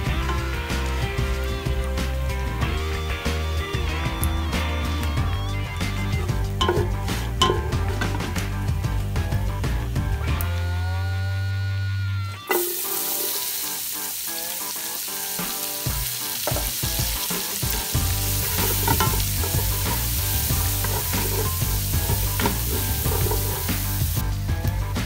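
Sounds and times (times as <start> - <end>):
vegetables sizzling in fat: 0.0 - 10.9, 12.4 - 24.8
wooden spoon stirring: 6.2 - 8.3, 16.4 - 24.2.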